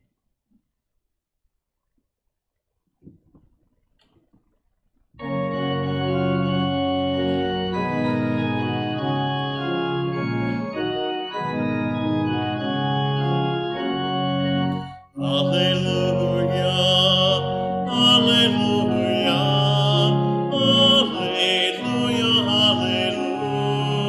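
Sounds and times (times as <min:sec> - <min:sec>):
church organ chords: 0:05.2 - 0:24.0
solo voice singing: 0:15.2 - 0:24.0.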